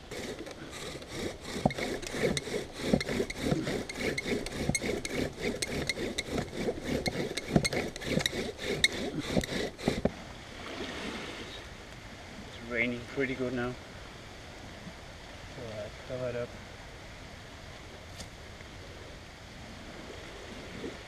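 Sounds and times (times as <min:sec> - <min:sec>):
bow drill rubbing wood: 0:00.0 - 0:10.2.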